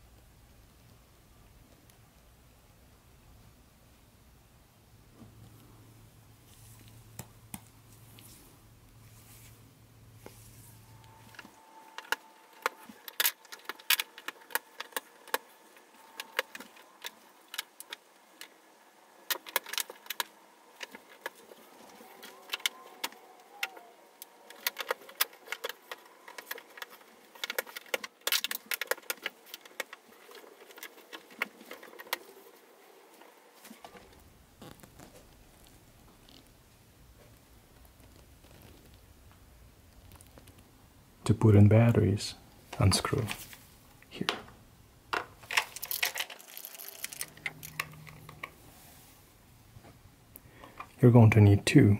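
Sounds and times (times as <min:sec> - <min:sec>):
plastic toy track clicking: 0:45.2 - 0:48.2.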